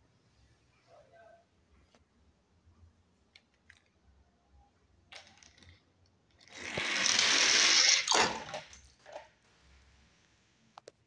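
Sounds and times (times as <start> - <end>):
toy car wheels whirring: 6.4 - 8.4.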